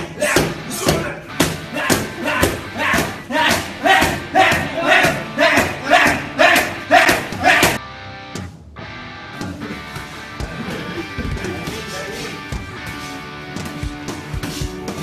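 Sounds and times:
person shouting: 0.0s - 7.8s.

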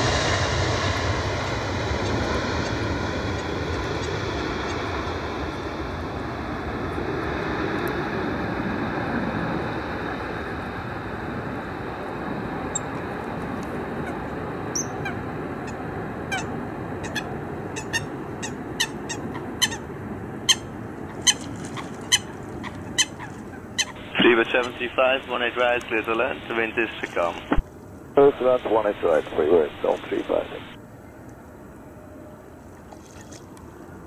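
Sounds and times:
jet engine roar: 0.0s - 32.7s
bird squawking: 14.8s - 24.1s.

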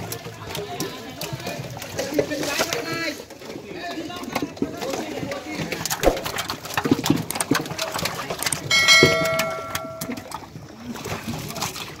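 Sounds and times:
fish flapping in metal pots: 0.0s - 12.0s
metal pot ringing: 8.7s - 10.4s.

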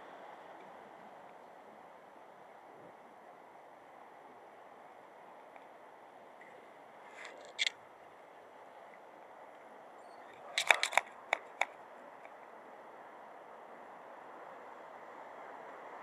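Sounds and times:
faint outdoor hiss: 0.0s - 16.0s
sharp clicks: 7.2s - 7.7s, 10.3s - 12.4s.

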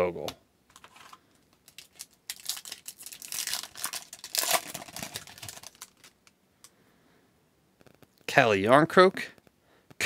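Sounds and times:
foil wrapper tearing and crinkling: 0.8s - 6.3s.

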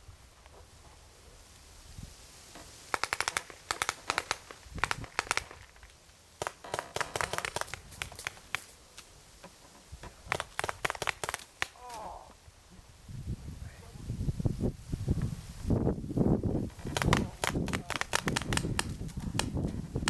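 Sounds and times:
paintball markers firing: 3.0s - 5.8s, 6.4s - 8.7s, 10.2s - 11.8s, 16.8s - 19.7s.

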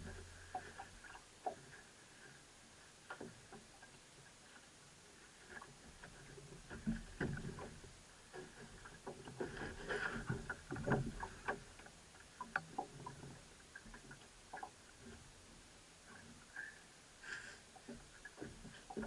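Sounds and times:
gear knocking and clattering in boat: 5.6s - 15.3s, 17.8s - 19.0s.

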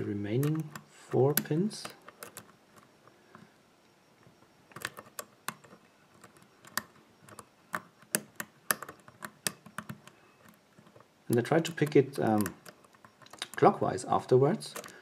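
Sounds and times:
lock pick clicking on pins: 0.4s - 2.9s, 4.7s - 13.8s, 14.6s - 15.0s.

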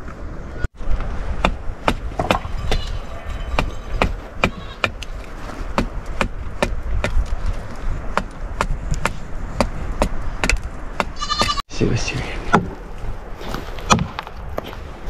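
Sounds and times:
knife chopping on wooden log: 5.7s - 7.2s, 13.9s - 14.2s.

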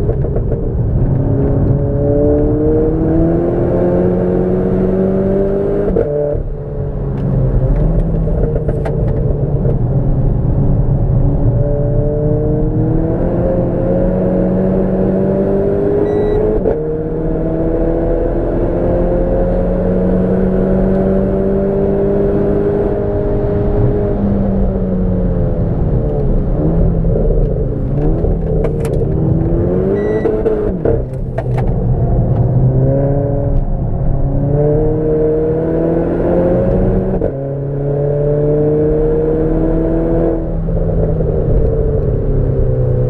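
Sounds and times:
car engine revving: 0.0s - 43.0s.

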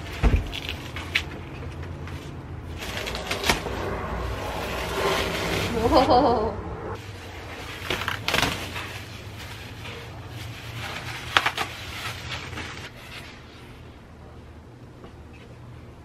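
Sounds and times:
steady low hum: 0.0s - 16.0s
plastic wrap crinkling: 7.4s - 13.0s.

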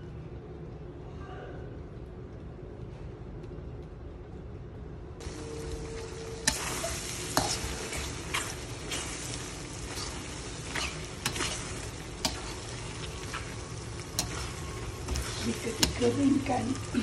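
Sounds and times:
food sizzling in pan: 5.2s - 17.0s
spatula scraping and knocking pan: 6.5s - 16.4s.

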